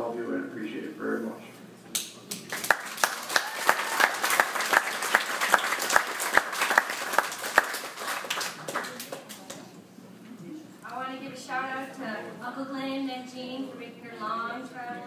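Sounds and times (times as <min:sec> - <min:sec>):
close loud hand claps: 0:02.0 - 0:09.6
crowd applauding: 0:02.4 - 0:09.6.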